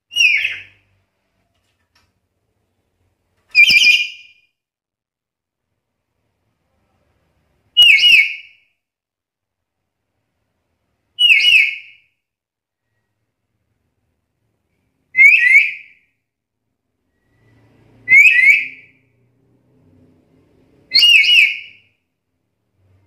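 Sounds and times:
parrot whistled calls: 0:00.1 - 0:00.8, 0:03.5 - 0:04.4, 0:07.8 - 0:08.6, 0:11.2 - 0:12.0, 0:15.1 - 0:16.0, 0:17.1 - 0:19.0, 0:20.9 - 0:21.8.

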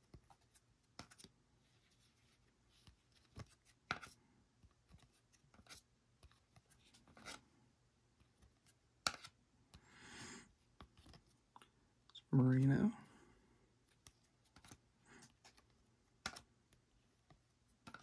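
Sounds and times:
trading cards flipped by hand: 0:00.0 - 0:07.4, 0:08.2 - 0:09.8, 0:10.7 - 0:11.7, 0:13.9 - 0:18.0.

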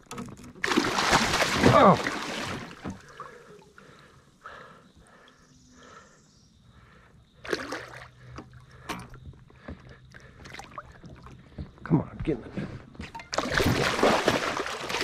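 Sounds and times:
water sloshing and trickling: 0:00.0 - 0:05.4, 0:07.3 - 0:11.8, 0:12.8 - 0:15.0
fish splashing: 0:00.6 - 0:03.6, 0:13.3 - 0:15.0.

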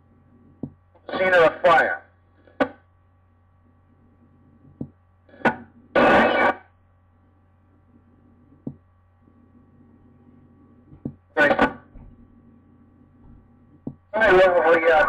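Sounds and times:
static hiss: 0:00.0 - 0:02.8, 0:03.7 - 0:06.8
steady hum with faint tones: 0:00.0 - 0:15.0.

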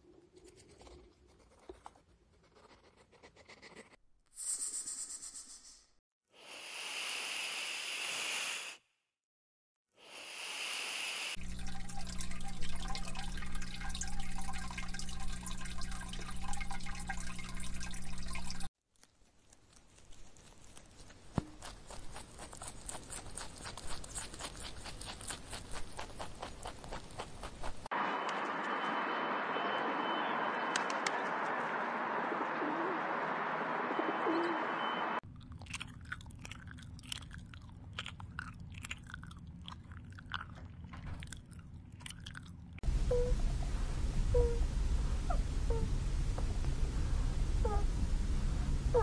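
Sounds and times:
rustling in leaf litter: 0:18.8 - 0:22.8
rabbit munching hay: 0:19.0 - 0:28.8.

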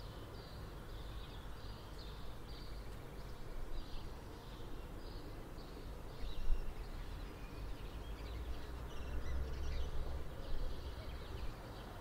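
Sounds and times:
small songbirds chirping: 0:00.0 - 0:12.0.

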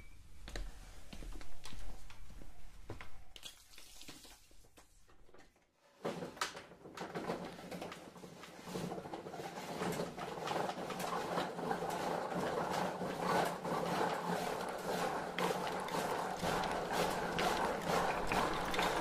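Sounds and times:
wooden gears clattering: 0:13.6 - 0:19.0
marbles rolling and dropping: 0:15.6 - 0:19.0.

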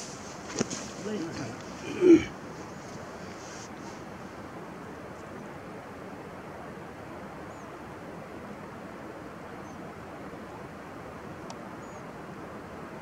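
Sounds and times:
rushing outdoor noise: 0:00.0 - 0:13.0
faint click: 0:11.4 - 0:11.6.

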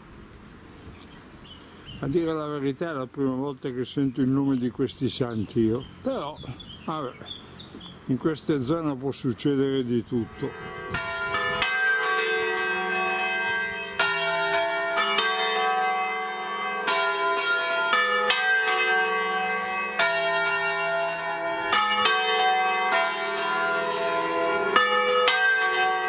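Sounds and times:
church bells ringing: 0:08.7 - 0:26.0.

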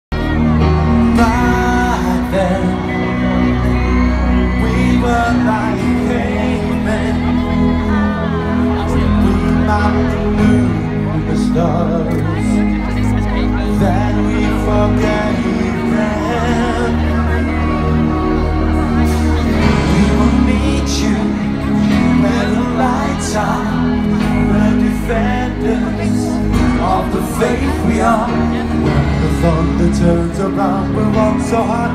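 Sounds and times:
live pop band music: 0:00.1 - 0:31.9
person singing: 0:00.1 - 0:31.9.

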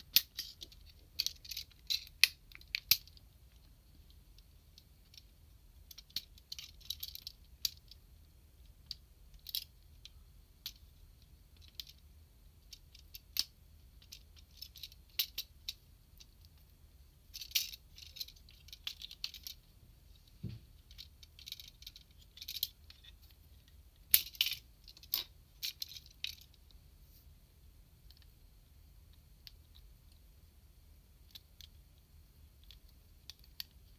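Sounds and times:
plastic toy parts clicking and rattling: 0:00.1 - 0:08.0, 0:08.6 - 0:16.7, 0:17.3 - 0:19.6, 0:20.8 - 0:26.7, 0:28.0 - 0:28.4, 0:31.2 - 0:31.8, 0:32.5 - 0:33.9.

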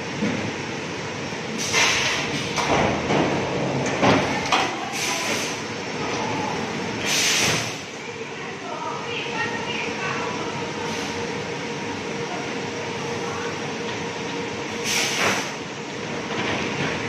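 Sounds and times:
short hissing bursts: 0:07.0 - 0:07.8.

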